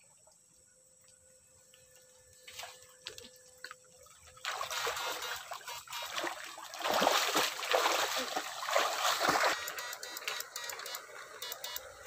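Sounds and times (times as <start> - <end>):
water sloshing and swishing: 2.4 - 12.0
water splashing from wading: 3.9 - 11.8.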